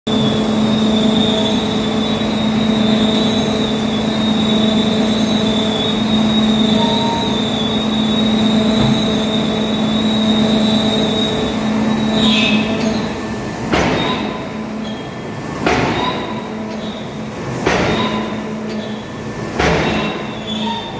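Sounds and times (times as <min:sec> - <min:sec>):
short falling squeal: 0:00.1 - 0:13.1, 0:20.0 - 0:20.9
machinery and fans droning: 0:00.1 - 0:20.9.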